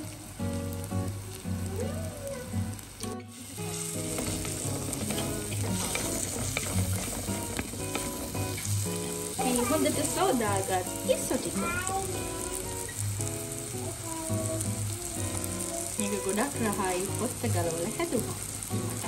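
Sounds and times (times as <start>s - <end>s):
spices sizzling in hot oil: 0.0s - 19.0s
wooden spoon stirring: 3.6s - 10.8s.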